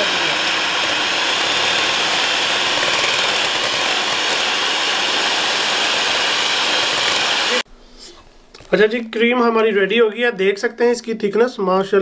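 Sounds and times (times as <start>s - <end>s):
electric hand mixer whipping cream: 0.0s - 7.6s.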